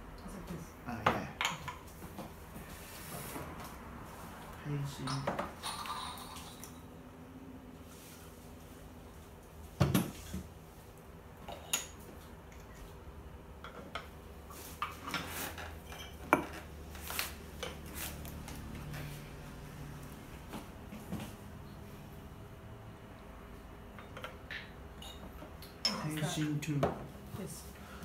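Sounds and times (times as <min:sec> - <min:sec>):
teapots and cups clinking: 0:05.0 - 0:06.8.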